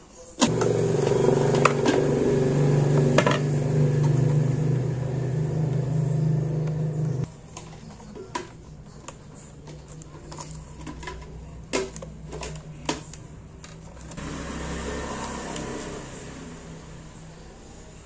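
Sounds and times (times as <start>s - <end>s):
steady low hum: 0.5s - 7.3s.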